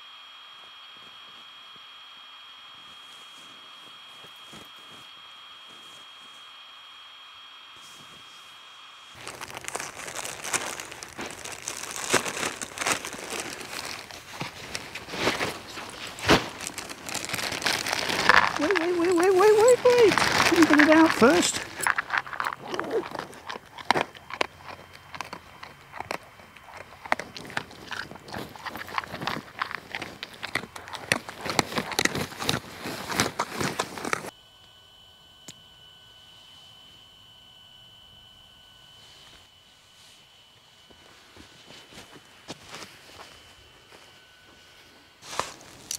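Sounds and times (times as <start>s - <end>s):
faint steady high tone: 0.0s - 33.6s, 34.2s - 45.9s
dog crunching food: 9.2s - 34.3s
plastic bag crinkling: 9.2s - 34.3s.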